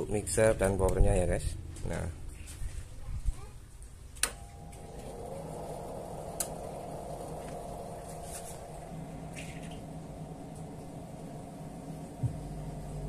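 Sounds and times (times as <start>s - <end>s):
amplifier hum: 4.2s - 13.0s
power switch click: 6.3s - 6.6s.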